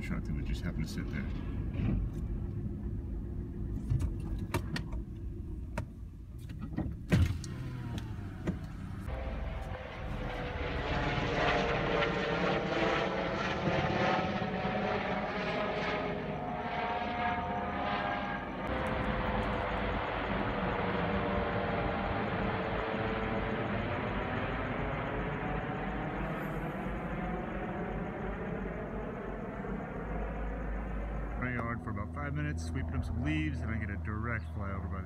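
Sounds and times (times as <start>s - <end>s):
helicopter flying overhead: 0.0s - 5.6s, 7.4s - 35.0s
road rumble inside moving car: 0.0s - 11.6s.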